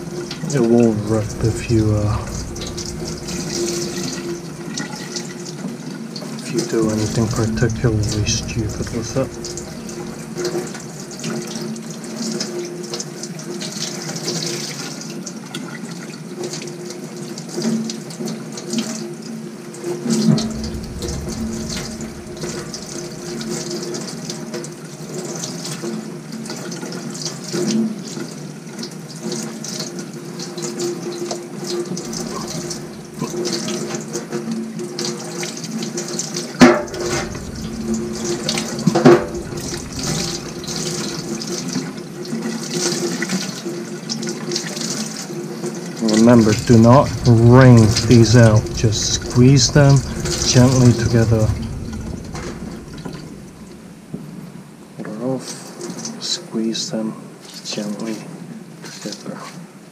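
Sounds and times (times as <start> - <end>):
tap water running into sink: 34.9 - 54.3.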